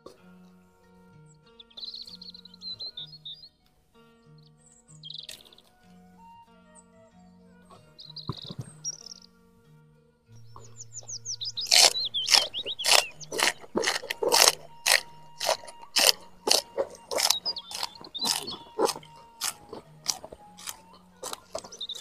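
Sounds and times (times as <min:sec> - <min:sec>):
crunching raw greens: 0:10.4 - 0:22.0.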